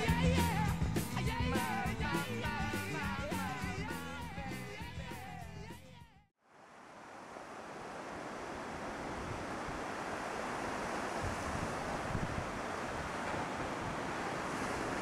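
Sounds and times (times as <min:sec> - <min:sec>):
ocean surf rushing: 0:06.6 - 0:15.0.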